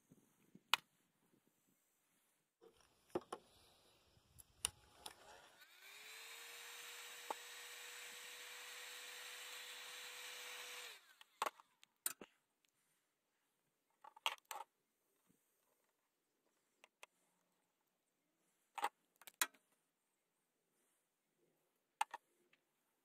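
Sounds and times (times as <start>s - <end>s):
heat gun fan whirring: 2.8s - 11.4s.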